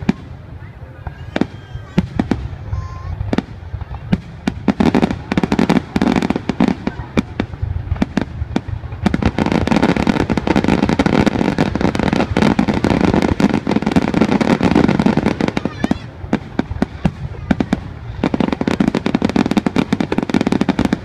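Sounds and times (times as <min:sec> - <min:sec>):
firework crackle: 0:00.0 - 0:21.0.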